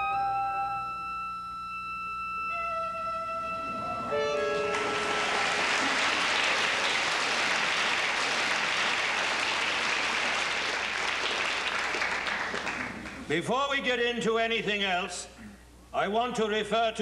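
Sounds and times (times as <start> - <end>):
music held notes: 0.0 - 7.6
audience applauding: 3.3 - 13.3.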